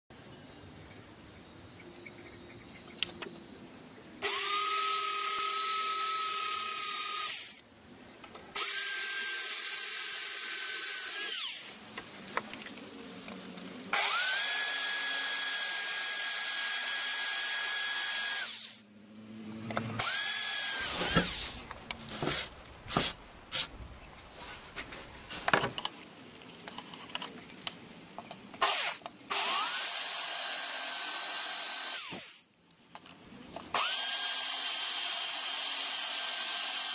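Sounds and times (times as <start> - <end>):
electric drill boring into steel: 4.2 - 7.6, 8.6 - 11.8, 13.9 - 18.8, 20.0 - 21.6, 28.6 - 32.4, 33.7 - 36.9.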